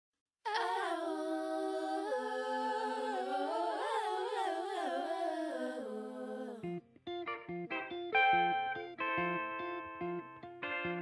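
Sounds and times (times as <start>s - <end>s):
voices humming in harmony: 0.5s - 6.6s.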